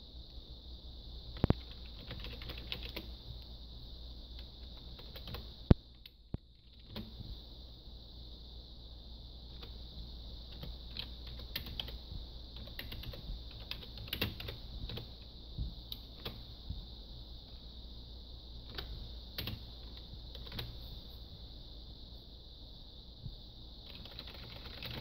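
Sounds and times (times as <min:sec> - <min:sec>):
steady high hiss: 0:00.0 - 0:25.0.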